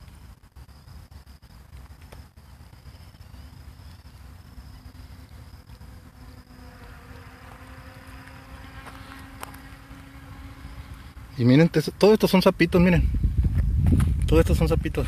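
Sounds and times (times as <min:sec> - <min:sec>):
high-pitched insect trill: 0:00.0 - 0:14.8
wind rumbling on microphone: 0:00.0 - 0:15.0
low steady drone: 0:02.4 - 0:13.4.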